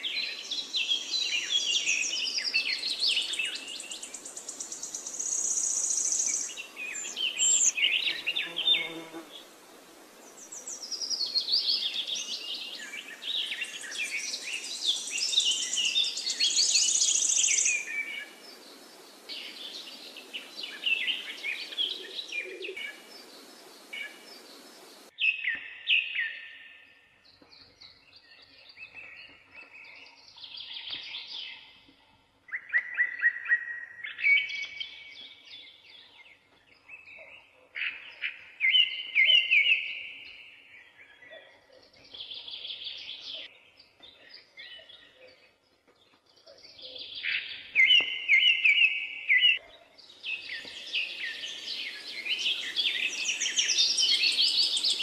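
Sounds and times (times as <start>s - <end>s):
birds chirping and singing: 0.0s - 9.3s, 10.3s - 55.0s
steady hiss: 22.8s - 25.1s.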